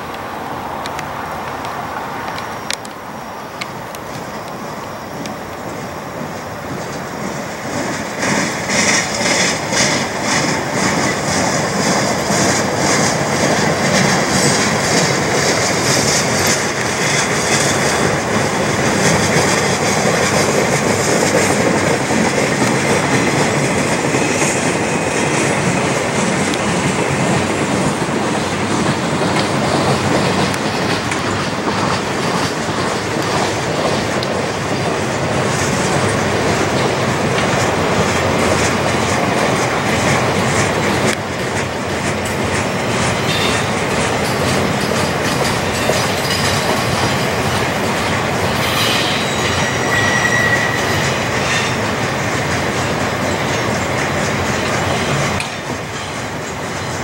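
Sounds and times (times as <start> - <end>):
steel wheels clattering on track: 0.8 - 57.0
high wheel squeal: 43.2 - 52.0.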